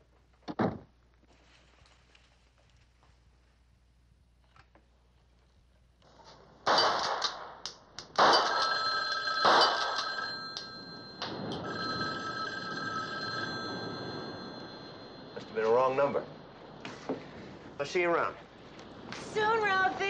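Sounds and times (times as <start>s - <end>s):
telephone bell ringing: 8.4s - 16.0s.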